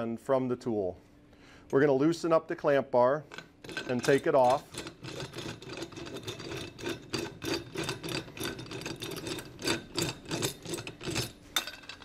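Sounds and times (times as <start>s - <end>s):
metal clamp rubbing and clicking: 3.3s - 12.0s.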